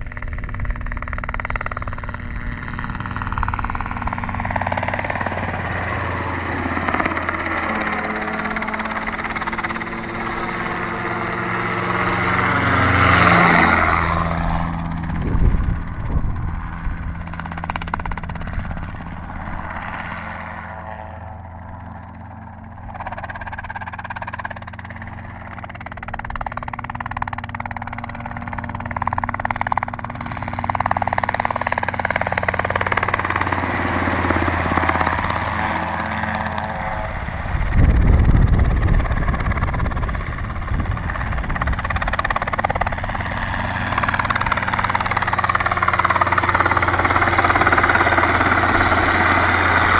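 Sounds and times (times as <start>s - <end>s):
helicopter rotor beat: 0.0s - 49.9s.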